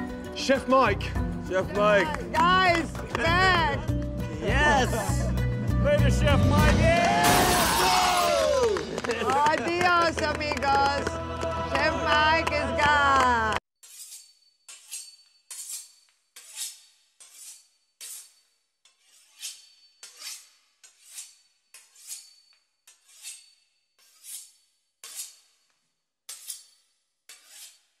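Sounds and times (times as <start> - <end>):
knife sawing through crisp pastry: 13.8 - 28.0.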